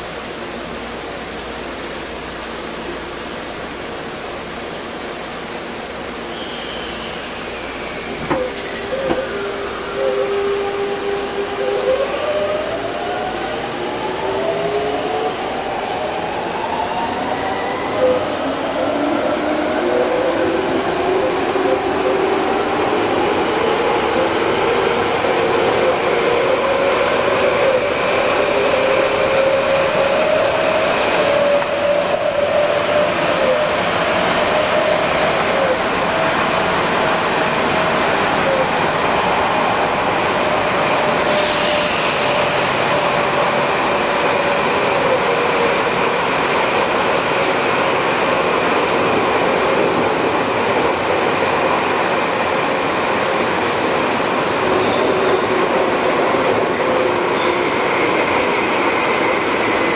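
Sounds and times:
wheels rumbling on rails: 7.6s - 59.9s.

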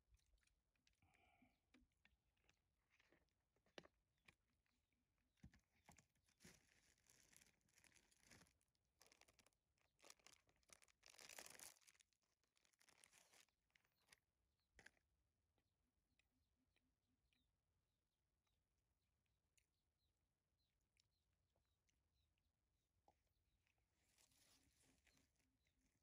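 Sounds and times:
crumbly tearing and rustling: 6.0s - 14.1s.

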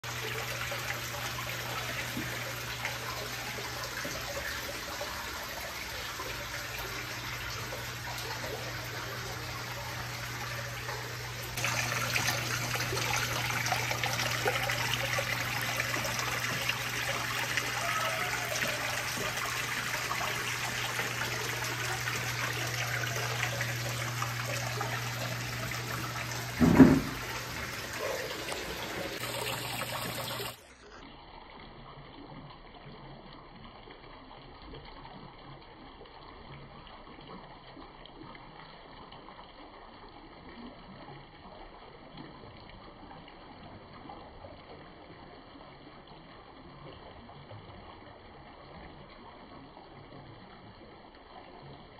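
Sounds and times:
water trickling down rockwork: 0.0s - 51.9s
loud thump: 26.6s - 27.2s.

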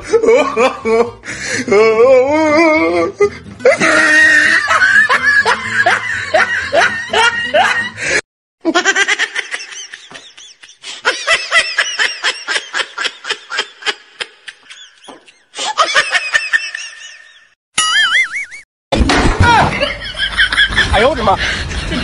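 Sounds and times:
rhythmic laughter: 3.2s - 17.4s.

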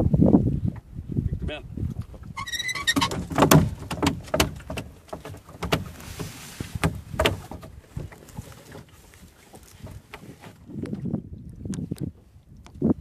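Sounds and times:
fish thrashing in plastic tub: 2.4s - 10.4s.

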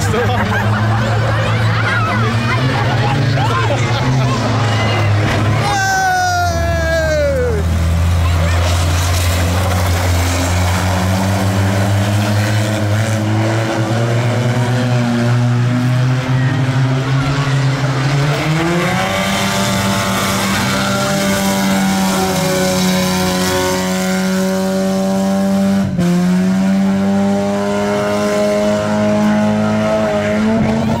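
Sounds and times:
racing car engines: 0.0s - 31.0s.

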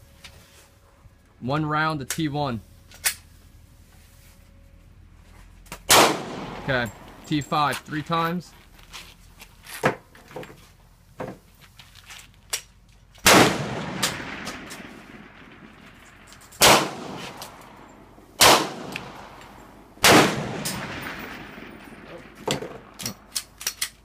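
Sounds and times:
pistol shots echoing: 5.9s - 7.3s, 13.2s - 23.3s.

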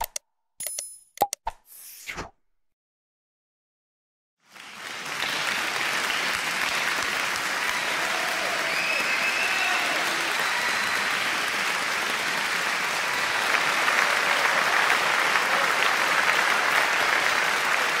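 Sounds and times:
crowd applause: 4.4s - 18.0s.

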